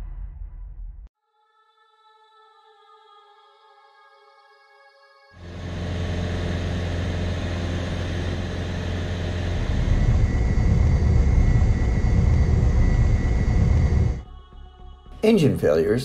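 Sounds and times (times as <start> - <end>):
airplane engine drone: 5.4 - 14.2.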